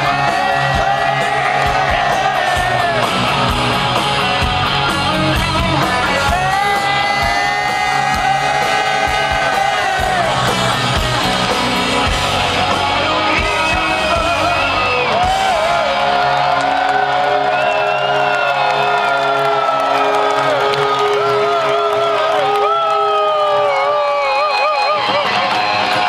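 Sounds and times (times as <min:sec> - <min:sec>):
bass guitar: 0:00.0 - 0:26.0
drums: 0:00.0 - 0:26.0
electric guitar: 0:00.0 - 0:26.0
singer holding long notes: 0:12.1 - 0:26.0.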